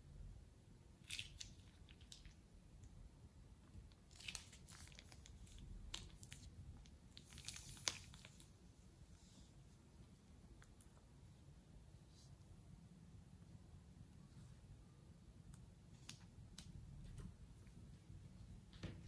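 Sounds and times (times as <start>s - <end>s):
slime crackling from plastic bag: 4.0s - 8.6s.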